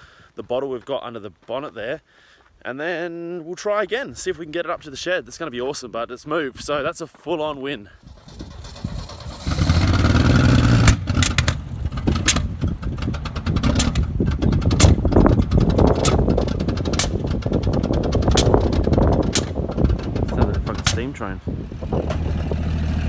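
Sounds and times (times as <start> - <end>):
old engine running roughly: 8.1 - 21.3
sharp engine cracks: 8.2 - 21.3.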